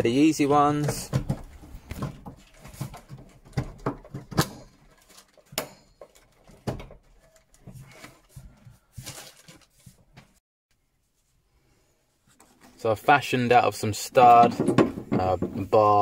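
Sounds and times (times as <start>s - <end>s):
rustling: 1.3s - 10.4s.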